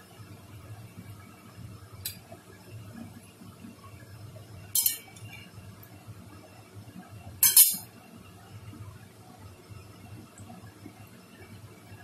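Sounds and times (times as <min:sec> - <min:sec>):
metal skimmer clinking on metal pan: 0:04.8 - 0:05.1, 0:07.4 - 0:07.8.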